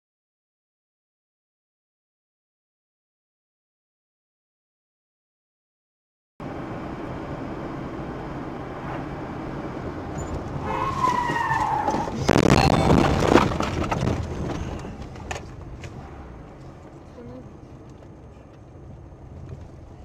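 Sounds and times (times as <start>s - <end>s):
road and engine noise: 6.4s - 20.0s
car skidding: 8.8s - 15.2s
tyres squealing: 10.2s - 13.4s.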